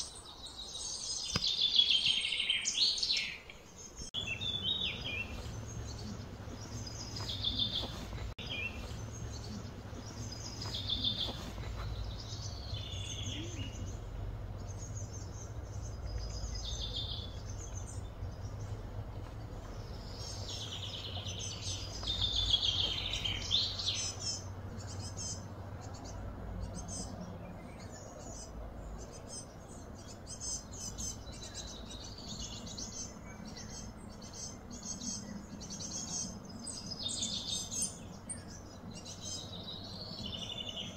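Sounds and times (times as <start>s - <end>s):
birds chirping and singing: 0.0s - 40.9s
steady low hum: 4.0s - 40.9s.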